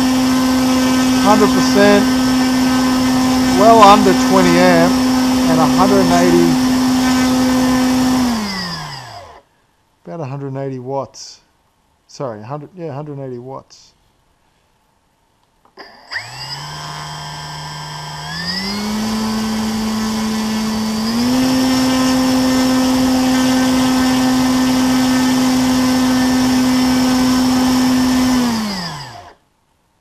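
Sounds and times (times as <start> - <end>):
electric motor and propeller whine: 0.0 - 9.4, 16.1 - 29.4.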